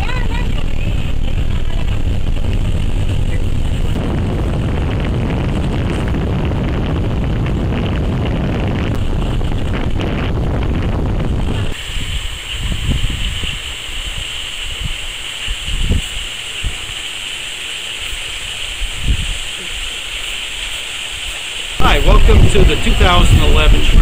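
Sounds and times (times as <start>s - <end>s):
minibus engine and road rumble: 0.0s - 7.8s.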